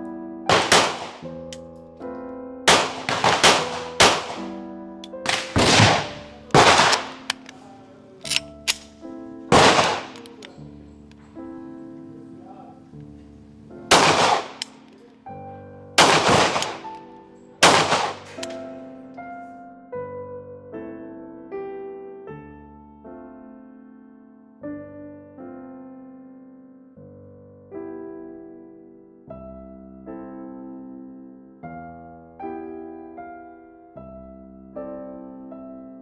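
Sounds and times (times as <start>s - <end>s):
instrumental background music: 0.0s - 23.8s
pistol shots: 0.5s - 1.3s, 2.7s - 4.5s, 5.2s - 7.6s, 8.2s - 10.6s, 13.9s - 14.9s, 16.0s - 17.0s, 17.6s - 18.7s.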